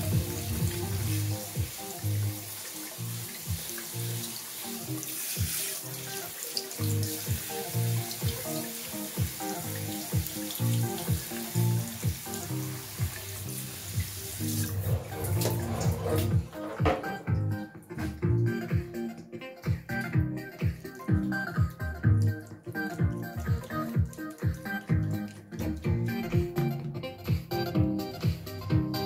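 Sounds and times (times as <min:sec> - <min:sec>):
music with bass and kick drum: 0:00.0 - 0:01.8, 0:07.3 - 0:07.5, 0:10.1 - 0:12.3, 0:14.8 - 0:29.0
tap water splashing on speaker: 0:00.0 - 0:26.7.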